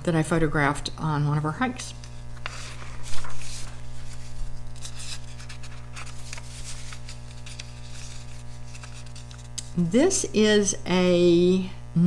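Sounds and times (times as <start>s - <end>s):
steady low hum: 0.0s - 12.0s
paper page rustling: 2.0s - 9.8s.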